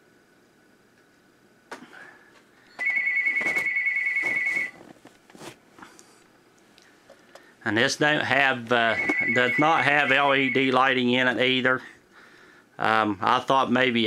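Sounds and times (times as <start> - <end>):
high electronic trilling ring: 2.7 - 4.8, 8.8 - 10.9.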